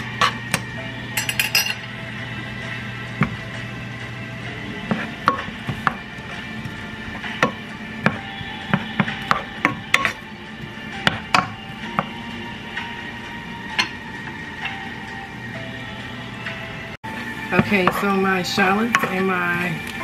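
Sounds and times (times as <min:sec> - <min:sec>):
wooden spoon scraping a pan: 0:00.0 - 0:00.4, 0:04.8 - 0:10.3.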